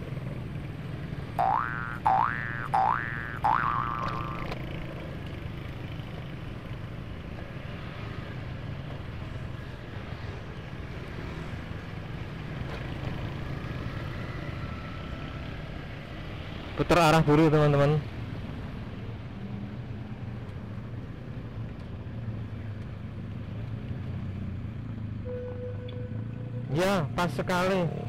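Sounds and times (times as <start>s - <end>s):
road and wind noise: 0.0s - 28.0s
rising electronic tone: 1.4s - 4.6s
motorcycle engine running: 1.4s - 6.8s.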